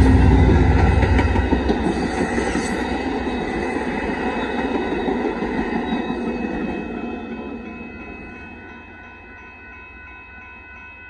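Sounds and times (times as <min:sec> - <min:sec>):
locomotive rumble: 0:00.0 - 0:03.5
train cars rolling on rails: 0:00.0 - 0:09.4.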